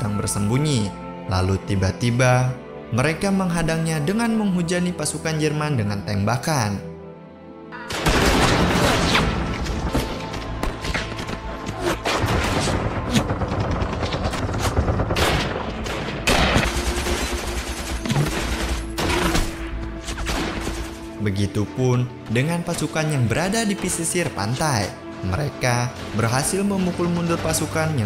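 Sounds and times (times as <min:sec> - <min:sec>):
rapid gunfire: 0:12.1 - 0:19.5.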